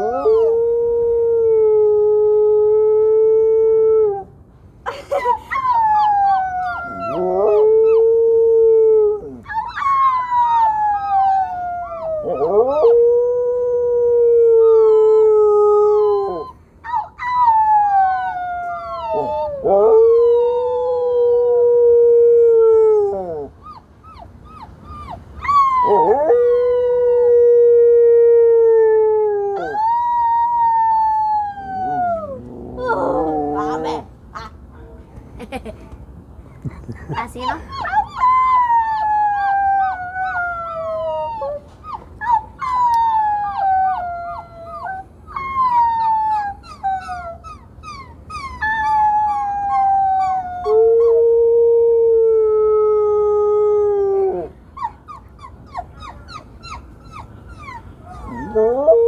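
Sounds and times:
dog howling: 5.8 - 14.9, 25.4 - 34.1, 55.7 - 59.0.

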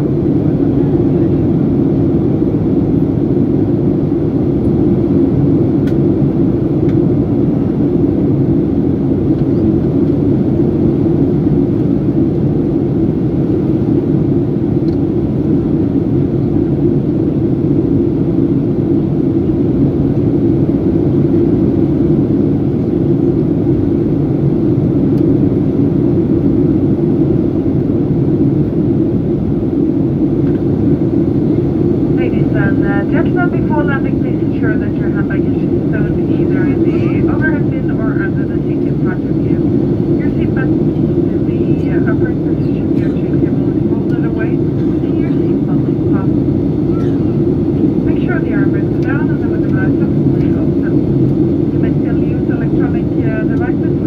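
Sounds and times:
airplane cabin drone: 0.0 - 54.0.

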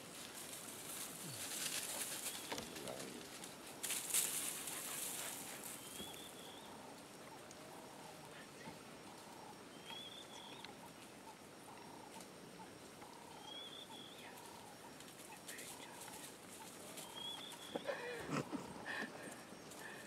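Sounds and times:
dogs scuffling on dry trail: 0.0 - 6.4
lower repeated bird calls: 1.2 - 3.6, 4.4 - 20.0.

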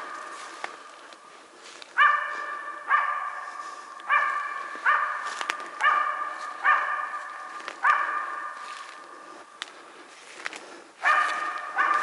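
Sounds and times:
dog barking: 2.0 - 9.1, 11.0 - 12.0.

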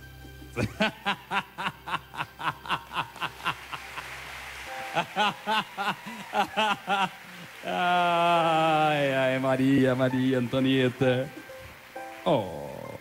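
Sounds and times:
person laughing in quick bursts: 5.0 - 7.9.

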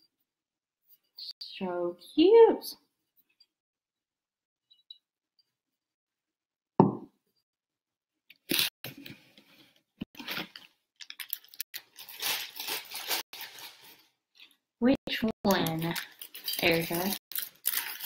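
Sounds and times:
packaging rustling and crinkling: 10.1 - 14.5, 15.6 - 18.0.

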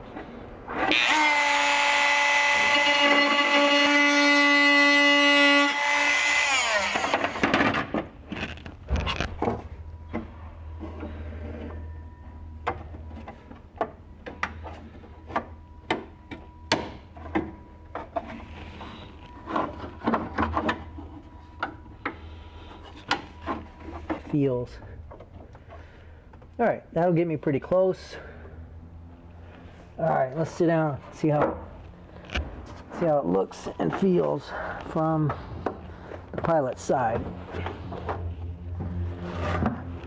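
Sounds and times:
rotary tool whining: 0.7 - 12.3
low hum: 8.0 - 26.6.

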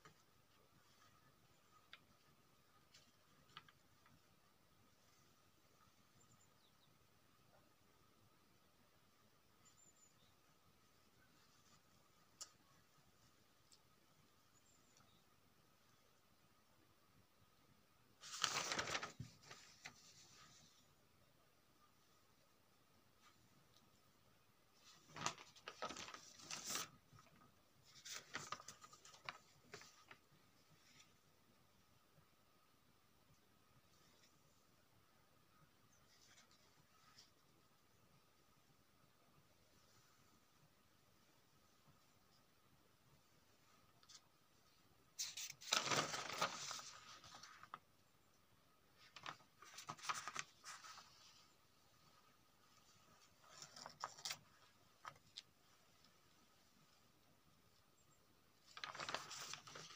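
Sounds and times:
paper rustling: 0.0 - 4.3, 18.2 - 20.9, 24.8 - 31.2, 36.1 - 37.4, 43.9 - 47.9, 48.9 - 56.4, 58.6 - 59.9.

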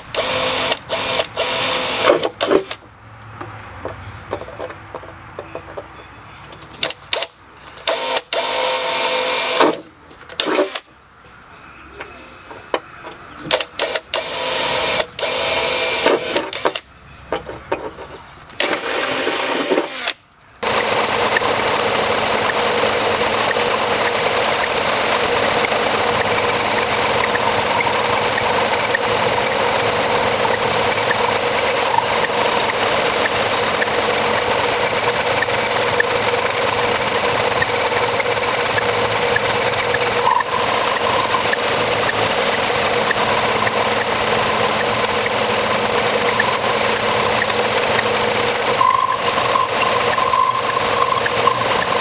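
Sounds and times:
metal lathe running: 20.6 - 52.0.

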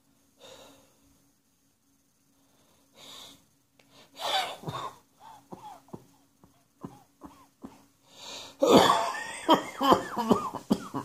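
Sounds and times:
person coughing: 4.2 - 6.1, 6.8 - 7.9, 8.6 - 11.0
person breathing in: 8.0 - 8.6.

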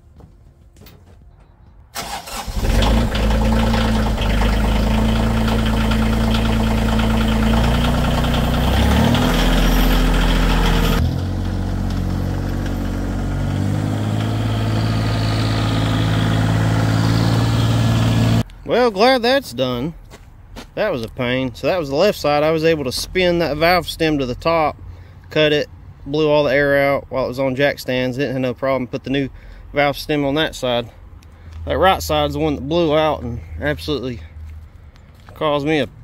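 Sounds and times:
tractor diesel engine starting: 1.9 - 18.4.

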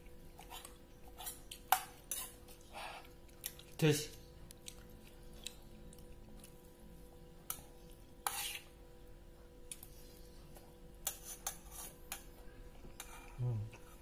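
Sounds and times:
faint steady hum: 0.0 - 14.0
metal spoon scraping a steel pot: 8.2 - 8.7, 11.0 - 12.2.

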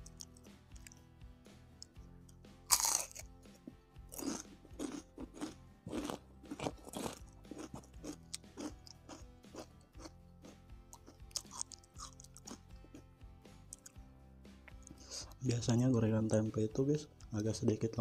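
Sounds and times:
background music: 0.0 - 18.0
crunchy bite and chewing: 2.7 - 10.1, 10.9 - 13.0.

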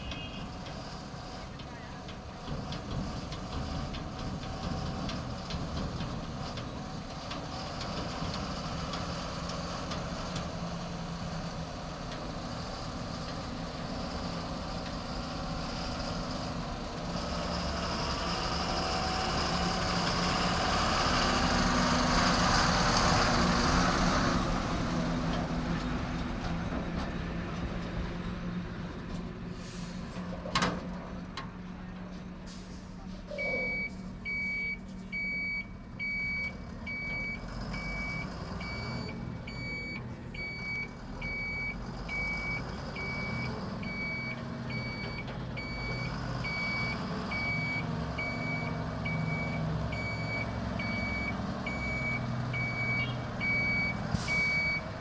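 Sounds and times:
dump truck diesel engine: 0.0 - 55.0.

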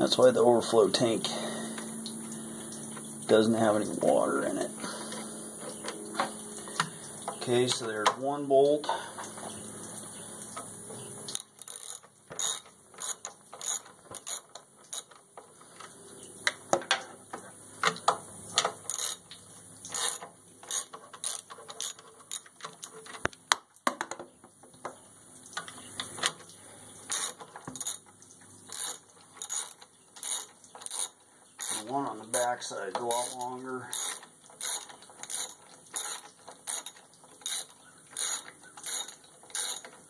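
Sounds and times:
socket ratchet clicking: 11.3 - 15.2, 19.9 - 22.9, 28.7 - 31.8, 33.1 - 39.9.

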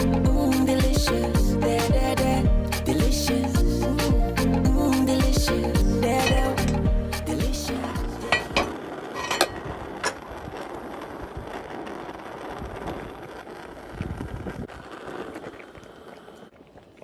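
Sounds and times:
background music: 0.0 - 8.7
stew boiling and bubbling: 6.0 - 17.0
metal clinking on a pot: 6.2 - 6.8, 8.3 - 10.2.

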